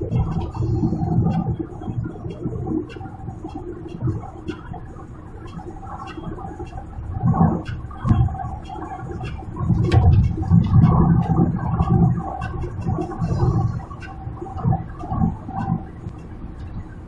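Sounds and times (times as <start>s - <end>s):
car cabin road rumble: 0.0s - 17.0s.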